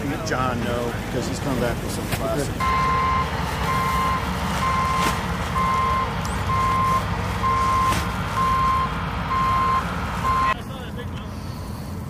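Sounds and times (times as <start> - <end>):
engine running low: 0.0 - 12.0
backup alarm beeping: 2.6 - 10.6.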